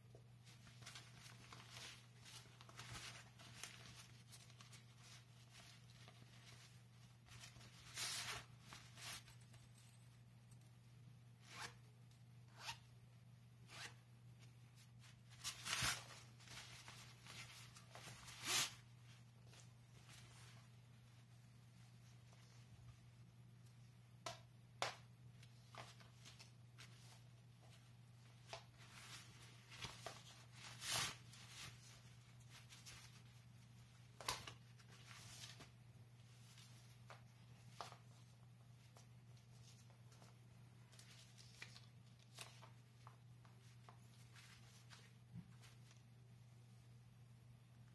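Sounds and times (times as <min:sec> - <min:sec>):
faint steady hum: 0:00.0 - 0:47.9
synthetic fabric rustling: 0:00.4 - 0:09.6, 0:13.7 - 0:22.8.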